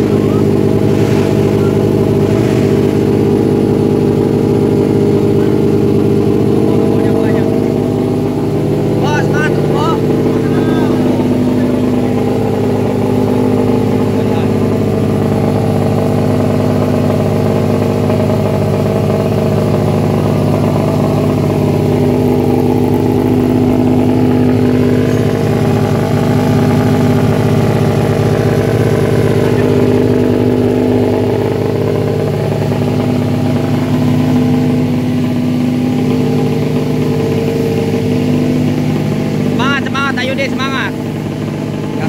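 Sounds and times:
motorcycle engine idling: 0.0s - 42.0s.

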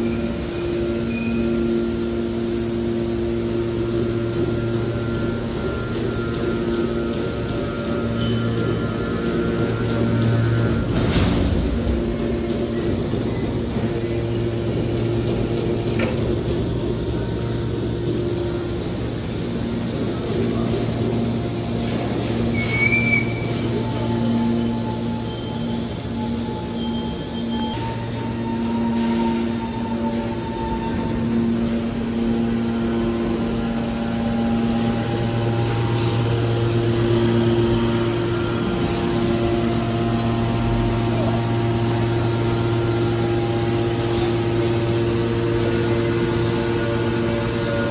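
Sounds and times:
hydraulic pump humming: 0.0s - 47.9s.

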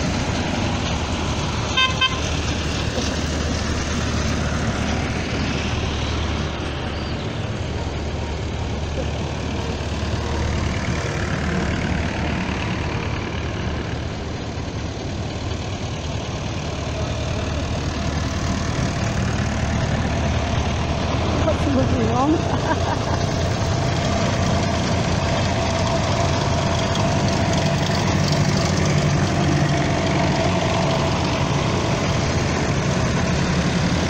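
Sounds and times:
tractors driving past: 0.0s - 34.0s
horn beeps: 1.8s - 2.2s.

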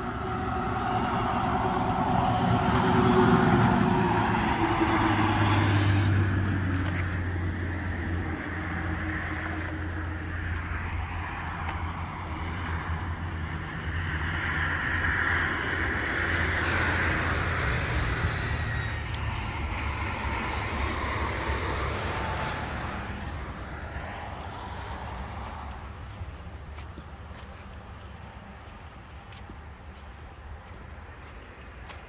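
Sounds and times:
vehicle passing with engine drone: 0.0s - 32.0s.

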